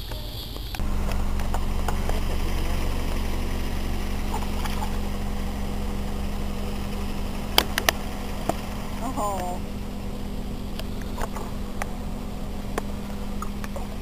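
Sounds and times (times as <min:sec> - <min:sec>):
low motor hum: 0:00.0 - 0:14.0
sharp clicks: 0:07.5 - 0:09.5.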